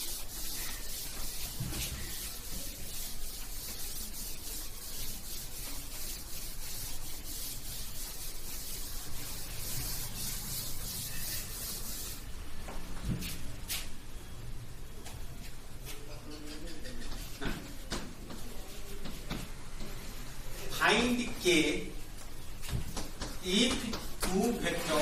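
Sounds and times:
eraser rubbing chalkboard: 0:00.0 - 0:12.2, 0:15.8 - 0:19.6.

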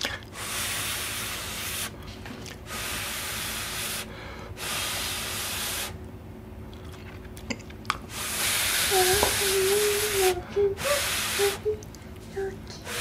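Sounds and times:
person breathing hard: 0:04.0 - 0:04.7
person chewing: 0:06.7 - 0:08.1.

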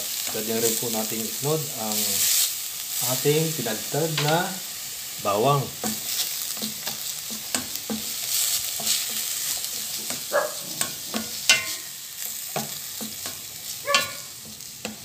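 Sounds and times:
onion sizzling in hot oil: 0:00.0 - 0:15.0
spatula scraping and knocking pot: 0:05.8 - 0:15.0.

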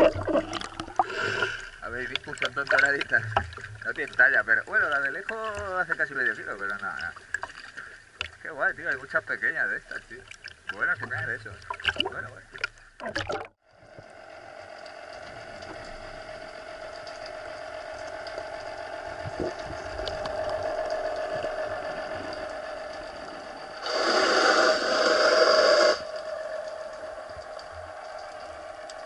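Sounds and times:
water splashing: 0:00.0 - 0:13.6
underwater boat engine hum: 0:00.0 - 0:29.0
loud rushing hiss: 0:23.8 - 0:26.3.

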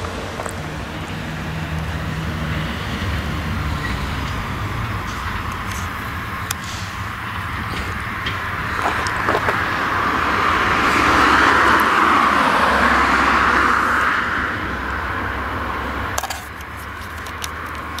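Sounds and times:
road vehicle passing by: 0:00.0 - 0:18.0.

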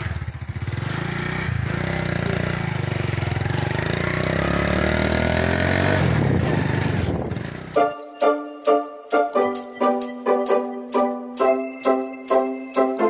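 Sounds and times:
motorcycle engine revving: 0:00.0 - 0:07.8
music: 0:07.7 - 0:13.0.

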